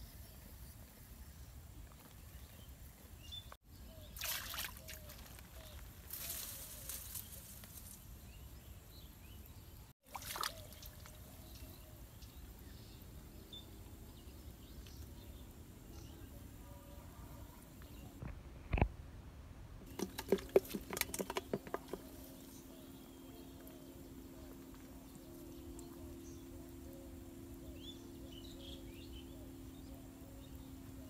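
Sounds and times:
water splashing in pond: 0:04.0 - 0:05.4, 0:10.0 - 0:11.6
low steady rumble: 0:22.0 - 0:31.0.

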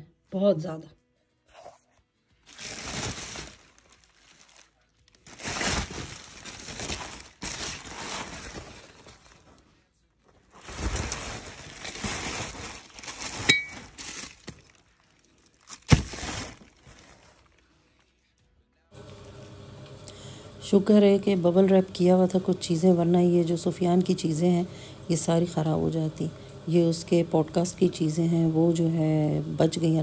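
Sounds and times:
bubble wrap rustling: 0:02.3 - 0:18.5
ceramic shards clinking: 0:13.5 - 0:14.0.

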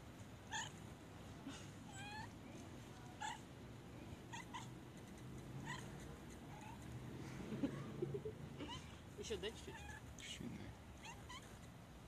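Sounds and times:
cat chirping meows: 0:00.5 - 0:00.8, 0:05.6 - 0:06.8, 0:11.0 - 0:11.7.

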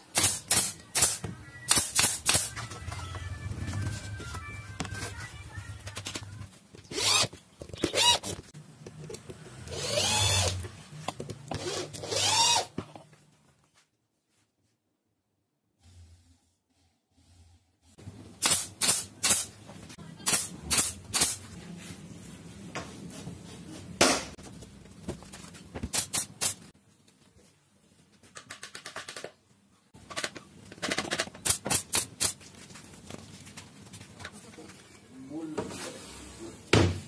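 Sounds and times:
nail gun firing: 0:00.1 - 0:02.5, 0:18.4 - 0:19.5.

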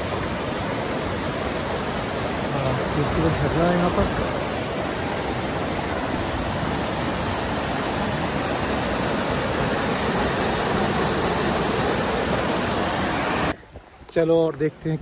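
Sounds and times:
stream rushing over boulders: 0:00.0 - 0:14.6.

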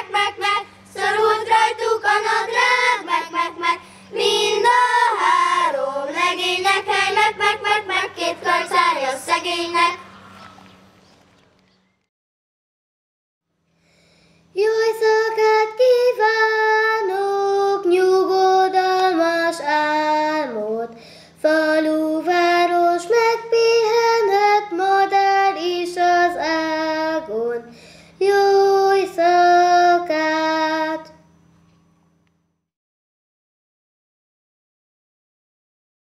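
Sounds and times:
girl singing: 0:00.0 - 0:10.0, 0:14.5 - 0:31.2
faint steady hum: 0:00.0 - 0:12.1, 0:13.5 - 0:32.7.

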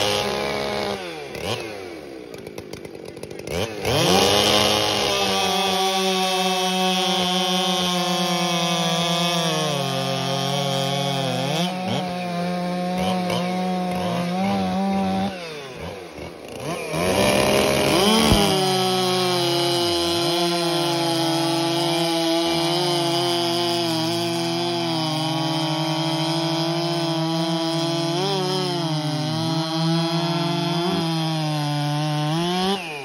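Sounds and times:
chainsaws cutting log: 0:00.0 - 0:33.0.

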